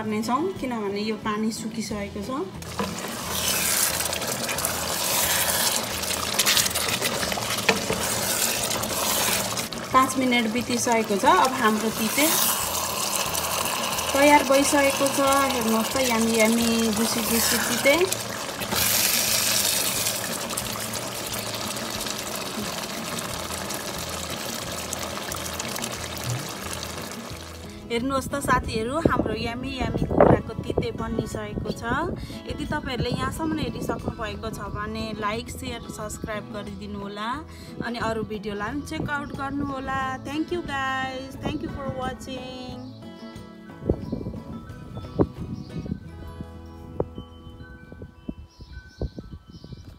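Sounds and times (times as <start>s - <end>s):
spatula stirring in pot: 2.6s - 27.7s
curry bubbling and spluttering: 2.6s - 27.8s.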